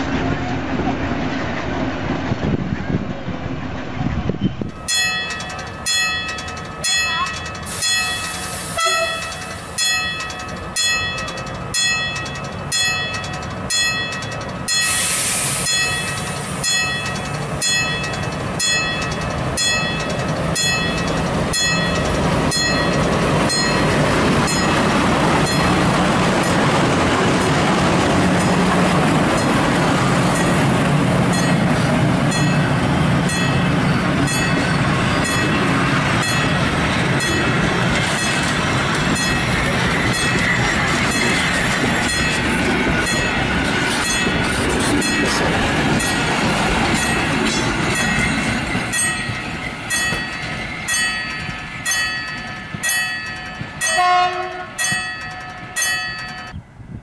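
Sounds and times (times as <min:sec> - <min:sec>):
diesel train passing: 0:00.0 - 0:57.0
level-crossing bell ringing: 0:04.8 - 0:15.0, 0:15.6 - 0:24.8, 0:48.0 - 0:56.6
brief hiss: 0:14.9 - 0:15.8.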